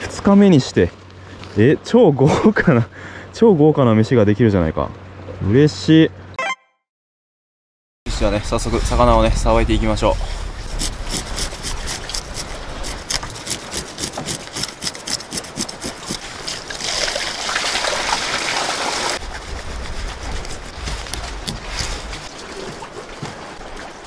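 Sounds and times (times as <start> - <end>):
low wind rumble: 8.1 - 14.0, 19.2 - 22.6
water splashing: 10.0 - 24.0
knife scratching fish: 10.6 - 16.4, 19.2 - 22.3.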